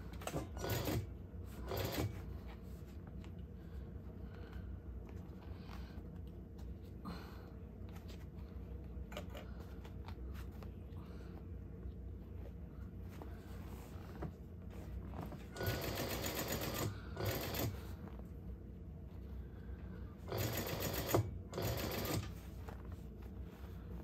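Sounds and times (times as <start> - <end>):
sewing machine stitching: 0.2 - 2.2, 15.6 - 17.8, 20.3 - 22.4.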